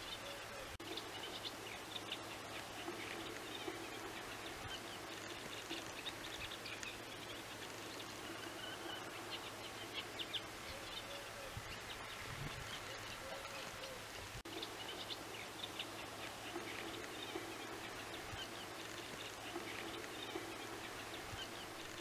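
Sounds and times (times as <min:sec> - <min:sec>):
low outdoor background noise: 0:00.0 - 0:22.0
small birds chirping: 0:00.0 - 0:22.0.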